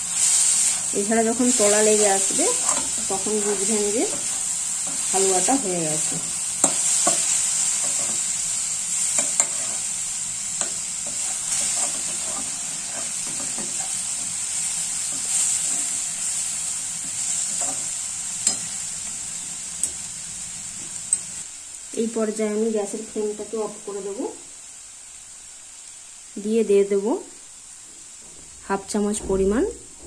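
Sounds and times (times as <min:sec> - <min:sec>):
food sizzling in metal pan: 0:00.0 - 0:30.0
metal spatula scraping pan: 0:10.6 - 0:14.2.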